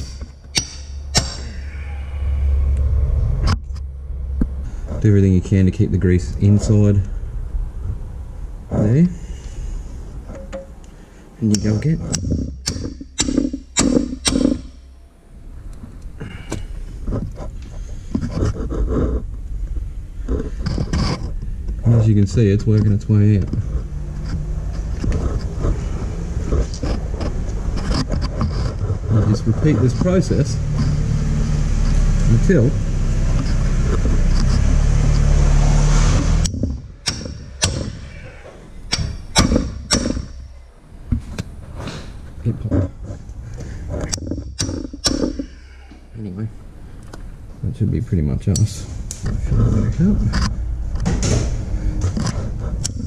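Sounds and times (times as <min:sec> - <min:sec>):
hammer striking metal socket: 0:00.0 - 0:01.4, 0:11.4 - 0:14.9, 0:36.4 - 0:38.1, 0:38.9 - 0:40.5, 0:44.1 - 0:45.5.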